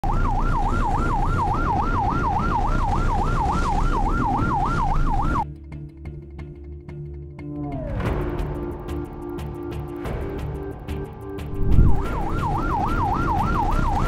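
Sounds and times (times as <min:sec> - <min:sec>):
electronic siren yelping: 0:00.0 - 0:05.4, 0:11.8 - 0:14.0
engine rumble: 0:00.0 - 0:05.4
sea: 0:00.0 - 0:05.4
wind: 0:00.0 - 0:05.4, 0:07.8 - 0:14.0
quiet background music: 0:04.9 - 0:14.0.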